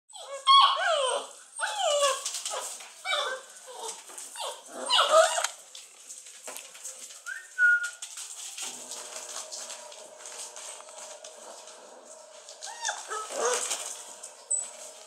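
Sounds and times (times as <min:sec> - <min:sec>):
puppies whining and yelping: 0:00.1 - 0:05.6, 0:12.5 - 0:15.0.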